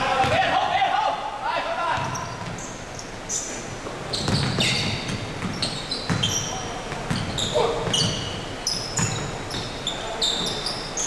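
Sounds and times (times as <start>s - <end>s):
sneaker squeaks: 1.9s - 11.0s
basketball bouncing on wood floor: 4.2s - 8.3s.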